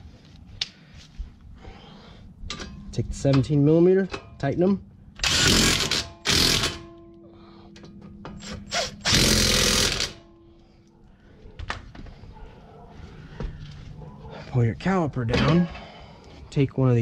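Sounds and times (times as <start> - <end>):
rapid ratchet clicking: 5.2 - 6.9, 8.4 - 10.2.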